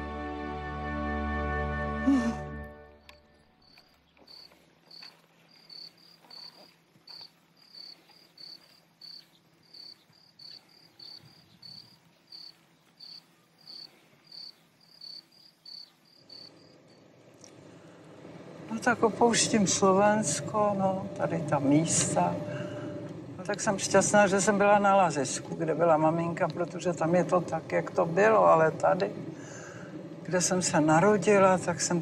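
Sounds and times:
cricket chirping: 3.0s - 18.2s.

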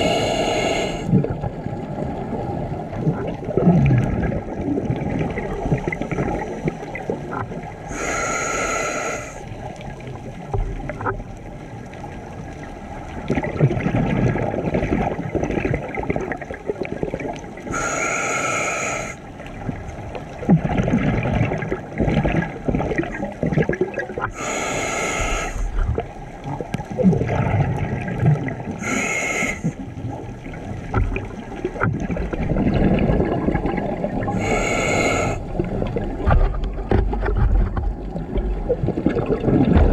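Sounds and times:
hissing regulator inhalations: 0.0s - 1.1s, 7.9s - 9.4s, 17.7s - 19.2s, 24.3s - 25.8s, 28.8s - 29.8s, 34.4s - 35.4s
bubbly exhalations: 3.0s - 7.4s, 20.4s - 29.8s, 31.1s - 36.6s, 37.2s - 39.9s.

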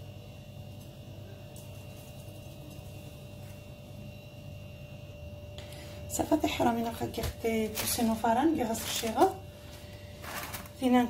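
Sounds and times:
low electrical hum: 0.0s - 11.0s
hands rustling dough in semolina: 7.0s - 11.0s.

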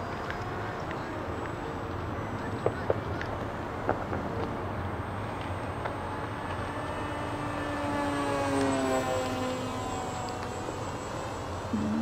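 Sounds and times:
model plane electric motor whine: 6.3s - 12.0s.

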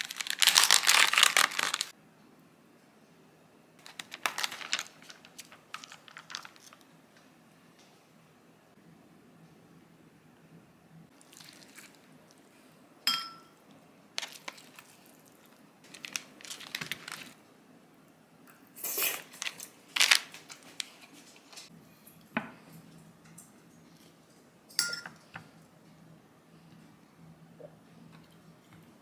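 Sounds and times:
plastic film crinkling: 0.0s - 1.9s, 3.8s - 6.9s, 14.2s - 15.2s, 15.9s - 17.4s, 19.1s - 21.7s
ceramic dishes clinking: 13.1s - 13.6s, 24.7s - 25.3s.

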